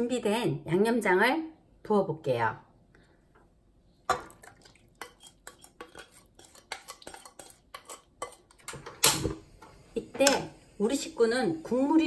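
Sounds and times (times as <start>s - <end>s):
wooden spoon scraping bowl and pot: 5.0s - 9.0s.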